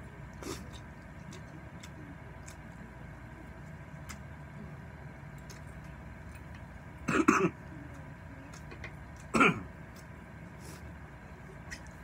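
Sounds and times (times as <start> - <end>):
man coughing: 9.3 - 9.7.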